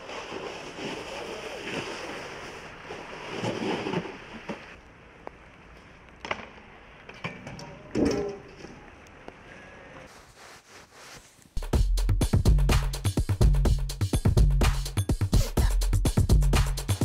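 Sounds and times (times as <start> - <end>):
snowboard scraping over wet snow: 0.0 - 4.8.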